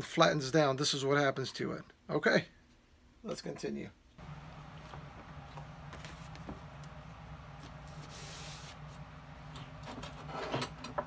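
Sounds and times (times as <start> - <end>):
steady low hum: 4.2 - 11.0
scraping and rubbing on boot: 7.6 - 9.0.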